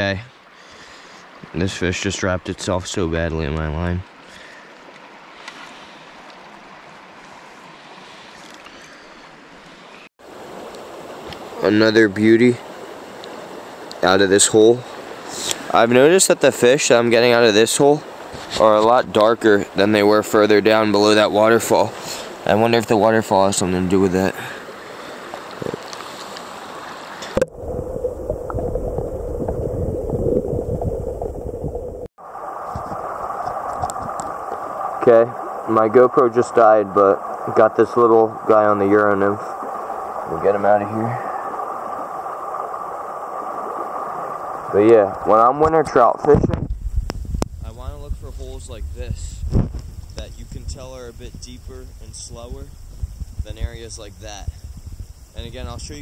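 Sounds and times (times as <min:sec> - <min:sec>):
stream flowing water: 0:00.0 - 0:46.4
faint clicks: 0:13.2 - 0:14.0
muffled underwater current gurgle: 0:25.0 - 0:56.0
gravel ticking underwater: 0:25.1 - 0:48.6.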